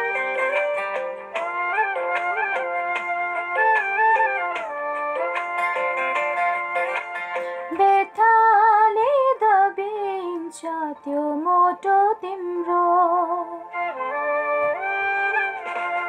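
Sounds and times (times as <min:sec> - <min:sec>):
instrumental backing music: 0:00.0 - 0:16.0
woman singing: 0:07.7 - 0:14.2.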